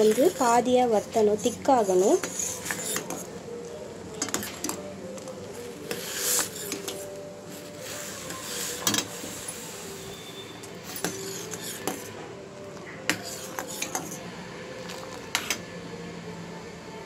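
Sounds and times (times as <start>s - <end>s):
ladle scraping a steel pot: 0.0s - 3.4s, 4.1s - 12.2s, 12.8s - 14.2s.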